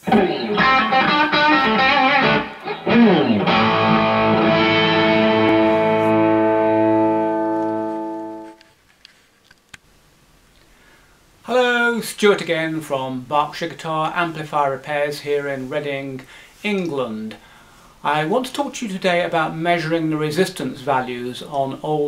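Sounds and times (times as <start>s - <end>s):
electric guitar playing: 0.0s - 8.7s.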